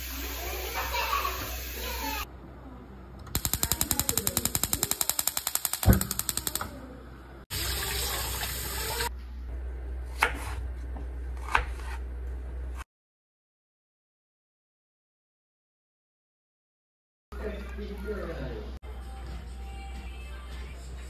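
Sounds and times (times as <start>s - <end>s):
tap water running into colander: 7.5s - 9.1s.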